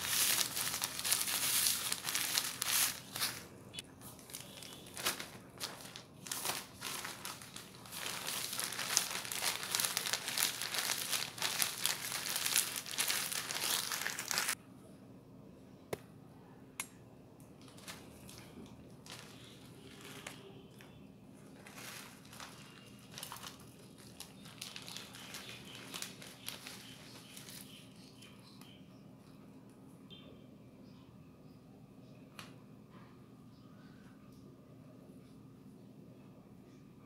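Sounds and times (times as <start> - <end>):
plastic bag crinkling: 0.0 - 3.4, 4.0 - 14.6, 17.6 - 27.8.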